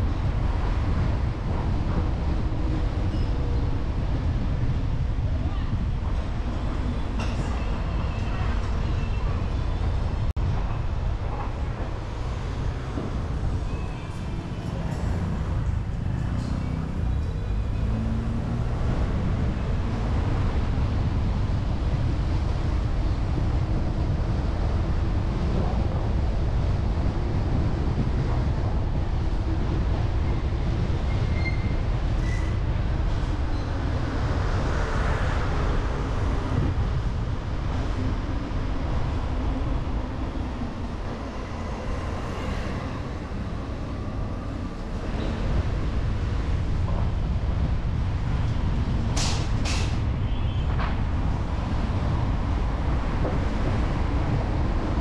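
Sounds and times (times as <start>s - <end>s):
passing vehicles rumbling: 0.0s - 55.0s.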